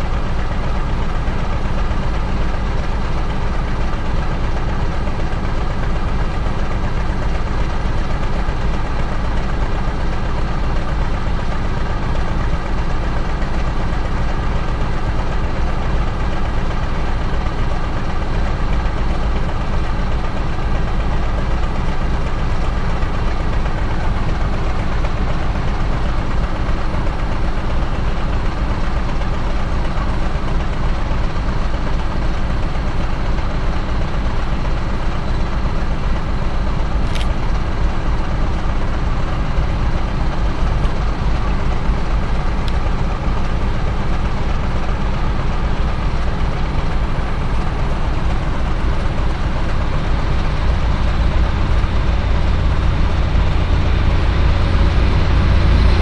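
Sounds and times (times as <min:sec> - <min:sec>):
diesel locomotive engine rumble: 0:00.0 - 0:56.0.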